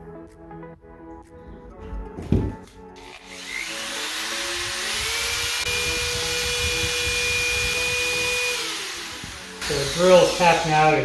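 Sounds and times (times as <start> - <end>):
electric drill motor running: 3.0 - 11.0.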